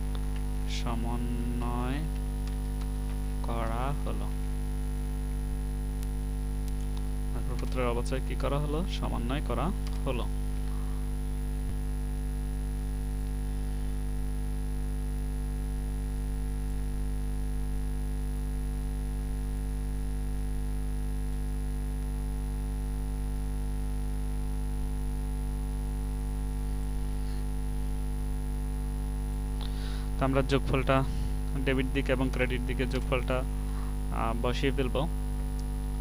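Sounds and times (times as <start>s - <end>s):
electrical mains hum: 0.0s - 36.0s.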